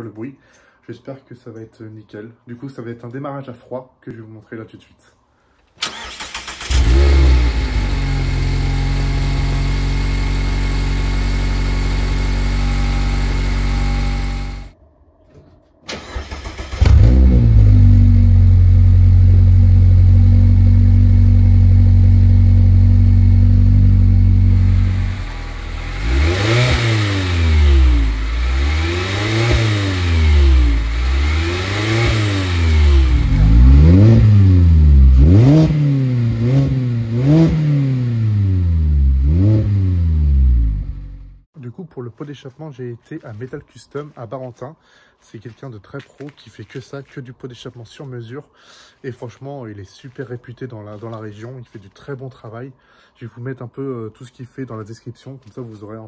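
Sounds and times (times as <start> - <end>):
engine revving: 5.8 - 14.8, 16.0 - 41.4
car engine idling: 16.8 - 35.4.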